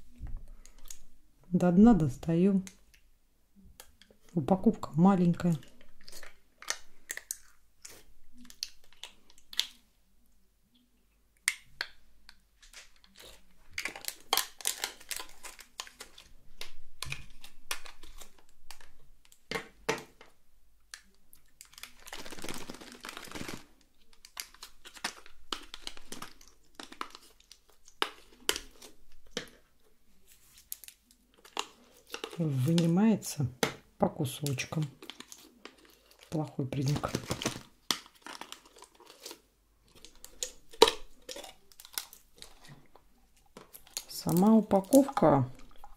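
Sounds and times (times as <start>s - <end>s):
crinkly rustle: 12.6s - 18.9s, 21.6s - 32.9s, 34.8s - 45.9s.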